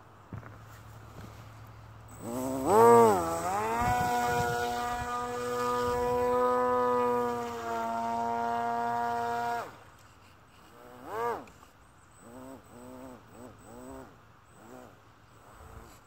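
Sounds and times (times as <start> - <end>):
model boat motor and propeller whine: 0.9 - 16.0.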